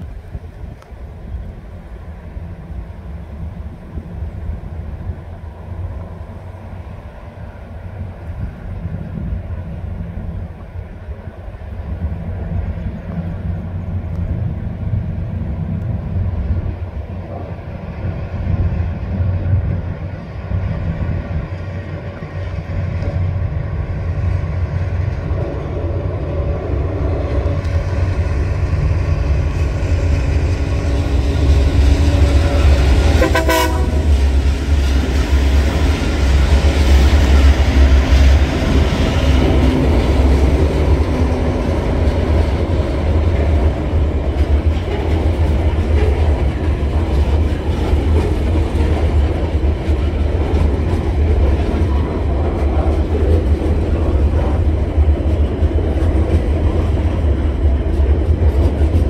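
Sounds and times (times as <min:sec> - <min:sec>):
diesel locomotives rumbling: 0:00.0 - 0:59.0
train horn toot: 0:31.9 - 0:34.2
wagons clickety-clack: 0:36.9 - 0:59.0.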